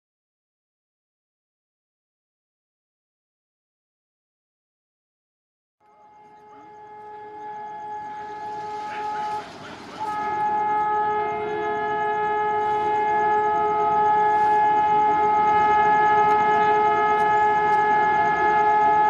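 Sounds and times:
train horn blast: 5.8s - 19.0s
train rumble: 5.9s - 19.0s.

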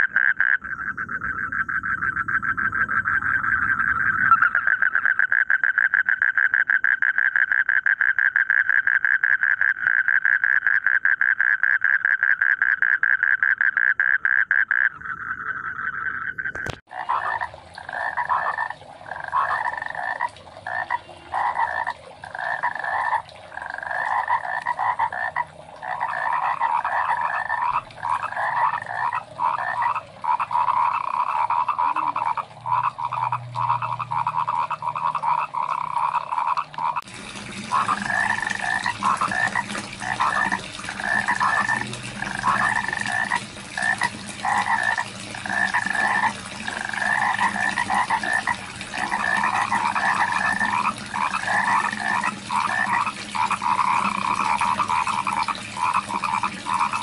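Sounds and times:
frogs croaking: 0.0s - 37.1s, 37.7s - 57.0s.

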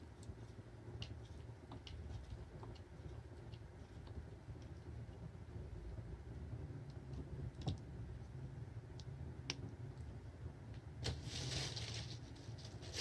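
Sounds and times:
low steady hum: 0.0s - 13.0s
short rustle: 11.0s - 13.0s.

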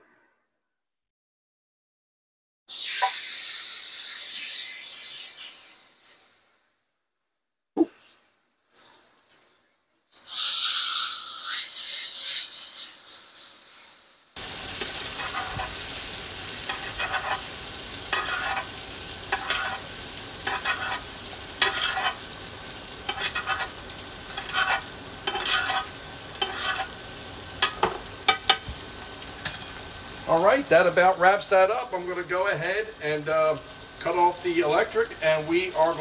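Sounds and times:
steak sizzling in skillet: 2.7s - 5.6s, 14.4s - 36.0s
butter sizzling: 2.7s - 5.8s, 11.1s - 36.0s
spoon splashing butter: 18.1s - 22.3s, 23.0s - 26.9s.

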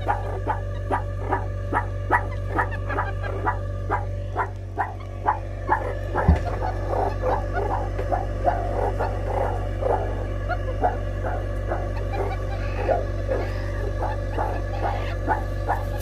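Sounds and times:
meerkats chirping: 0.0s - 16.0s
steady low hum: 0.0s - 16.0s
low thump: 6.2s - 6.6s.

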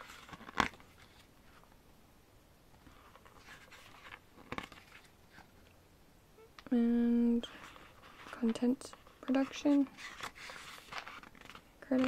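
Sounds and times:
soft paper rustle: 0.0s - 1.8s, 2.7s - 5.8s, 7.2s - 12.0s.

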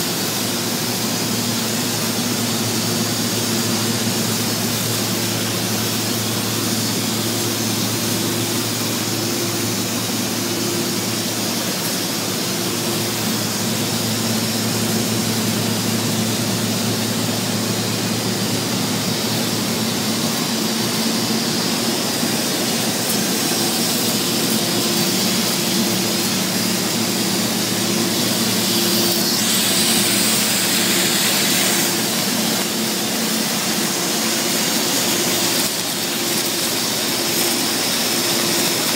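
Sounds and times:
low electrical hum: 0.0s - 38.9s
welding rig running: 0.0s - 38.9s.

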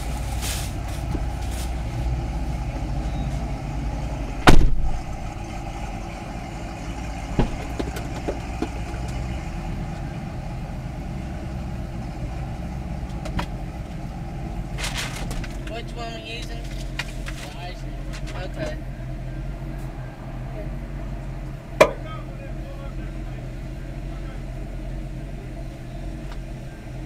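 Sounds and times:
car engine idling: 0.0s - 27.0s
loud knock: 4.4s - 4.9s, 7.4s - 8.8s.

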